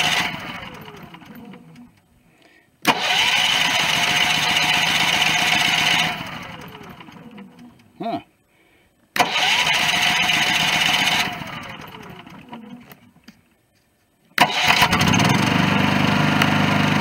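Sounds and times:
generator engine running: 0.0s - 1.9s, 2.8s - 7.6s, 9.2s - 13.0s, 14.4s - 17.0s
generator starter cranking: 0.0s - 2.0s, 2.8s - 7.6s, 9.2s - 13.0s, 14.4s - 17.0s.

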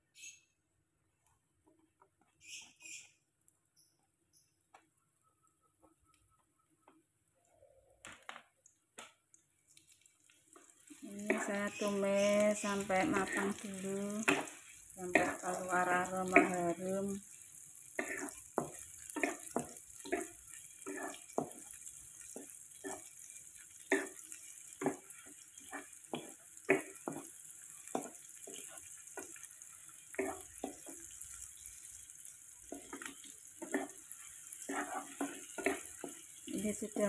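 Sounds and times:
shallots sizzling in hot oil: 9.1s - 37.0s
spatula scraping a pan: 11.2s - 13.6s, 14.2s - 15.6s, 17.9s - 36.6s.

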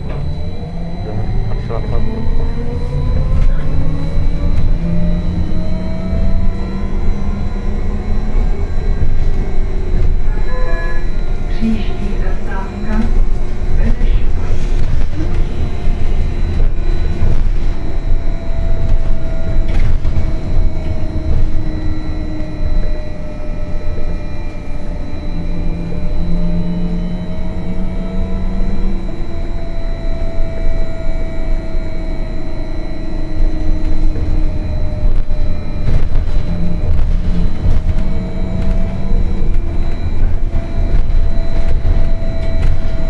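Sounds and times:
electric traction drive whining: 0.0s - 43.0s
low road rumble: 0.0s - 43.0s
lower hum: 0.0s - 43.0s
steady high tone: 0.0s - 43.0s.

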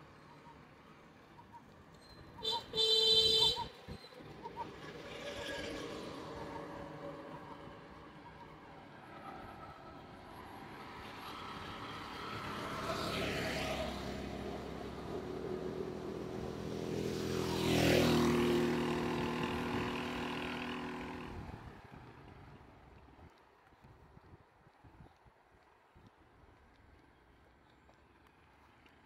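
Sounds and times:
motor vehicles passing: 0.0s - 23.2s.

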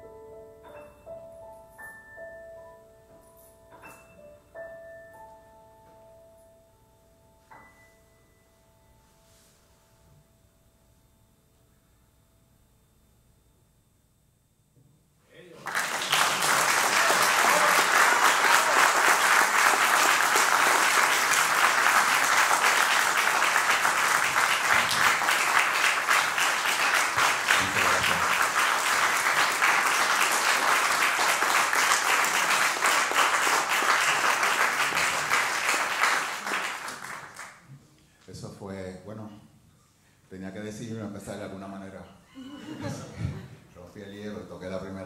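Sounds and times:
audience applauding: 15.6s - 37.7s.

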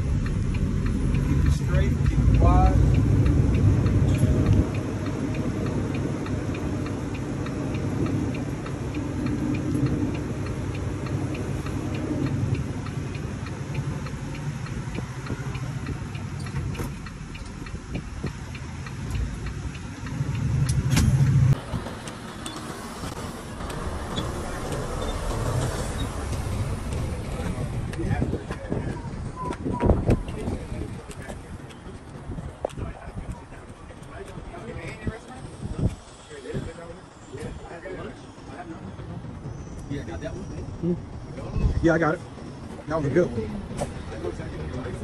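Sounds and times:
light ticking: 0.0s - 21.4s
diesel truck engine running: 0.0s - 32.6s.

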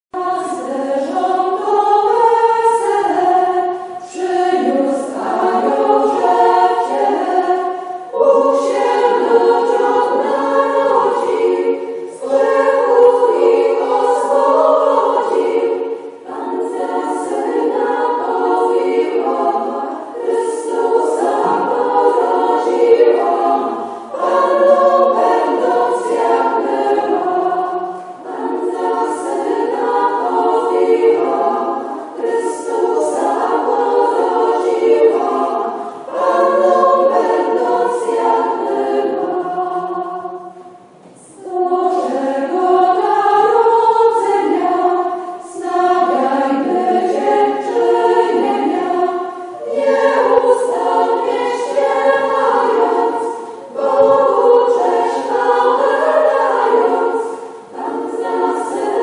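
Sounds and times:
choir singing unaccompanied: 0.1s - 59.0s.

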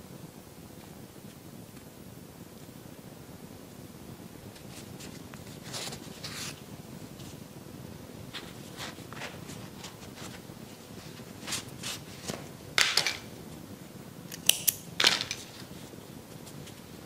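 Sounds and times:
scissors snipping: 14.3s - 14.8s.

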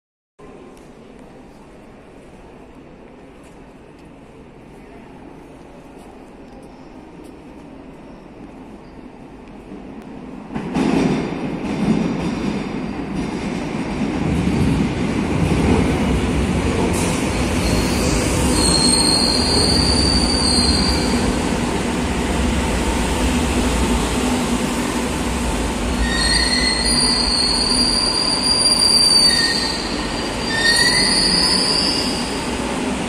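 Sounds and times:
train rumbling: 0.5s - 33.0s
high squeal of wheels and brakes: 17.0s - 21.3s, 26.0s - 32.5s.

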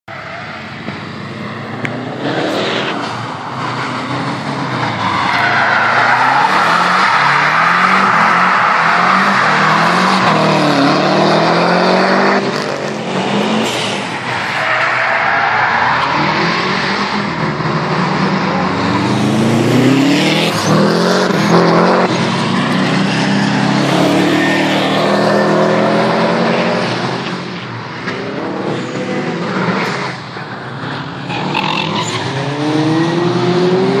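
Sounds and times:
car engine revving hard: 2.0s - 14.1s, 16.2s - 27.5s.

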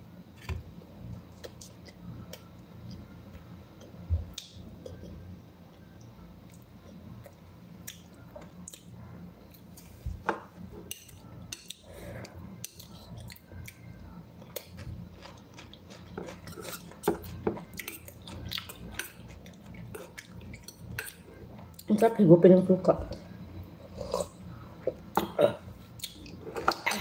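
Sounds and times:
person chewing: 14.4s - 21.8s.

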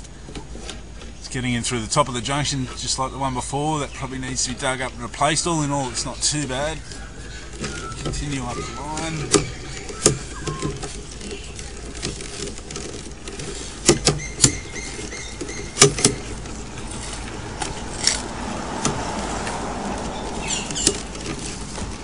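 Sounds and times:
steady low hum: 0.0s - 22.0s
sharp clicks and knocks: 7.5s - 22.0s.

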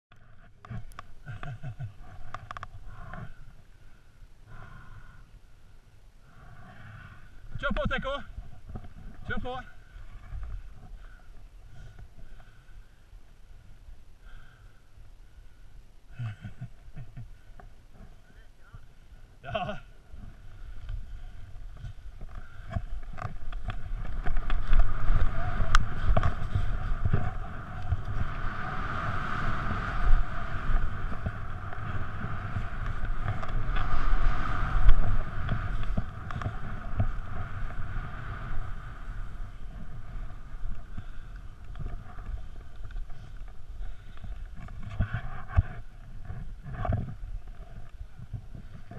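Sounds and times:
wind rushing over camera: 0.1s - 48.9s
skis hissing through snow: 24.6s - 40.6s.

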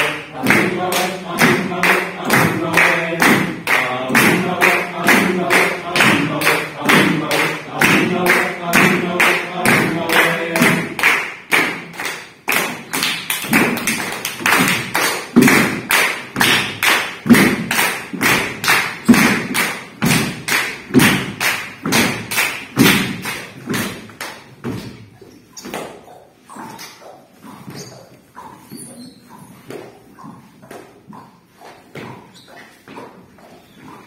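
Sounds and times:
feet stamping and tapping on floor: 29.5s - 34.0s.

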